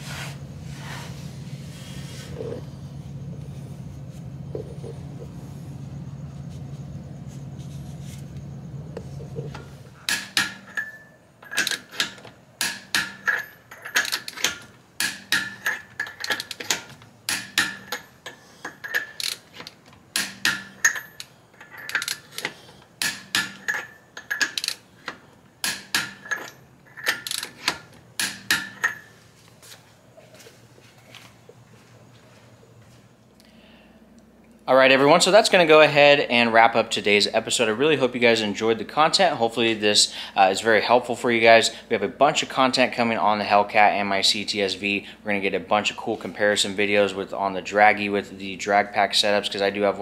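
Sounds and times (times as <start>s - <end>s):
low steady hum: 0.0s - 50.0s
hand ratchet clicking: 10.1s - 24.9s, 25.6s - 28.9s.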